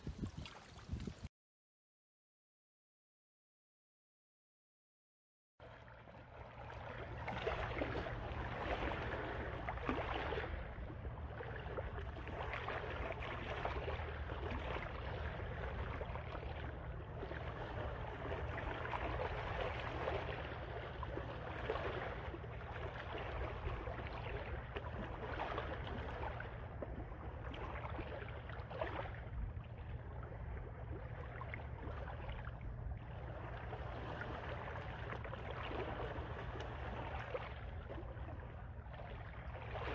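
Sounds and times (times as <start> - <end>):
shallow water lapping: 0.0 - 1.3, 5.6 - 39.9
wind rumbling on microphone: 0.0 - 1.3, 6.8 - 39.9.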